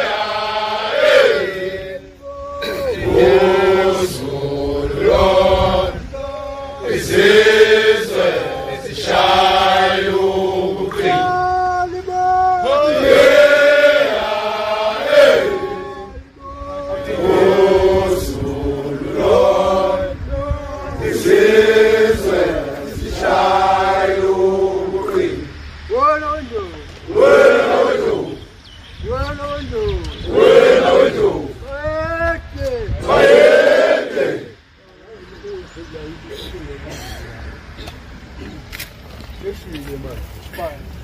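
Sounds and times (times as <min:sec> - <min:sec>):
men chanting together: 0:00.0 - 0:25.6, 0:27.0 - 0:28.6, 0:30.2 - 0:31.6, 0:32.9 - 0:34.6.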